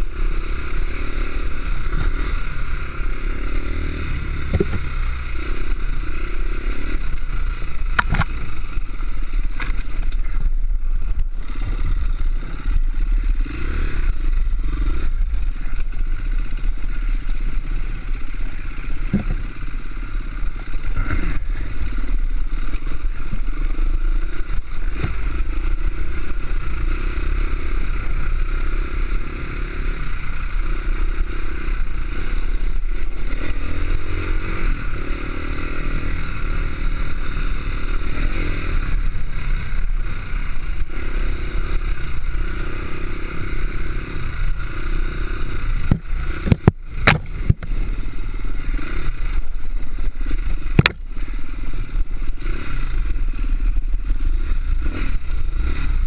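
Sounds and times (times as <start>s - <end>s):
dirt bike engine revving: 0.0s - 9.4s, 10.4s - 56.0s
sharp knocks: 45.9s - 47.7s, 50.8s - 51.0s.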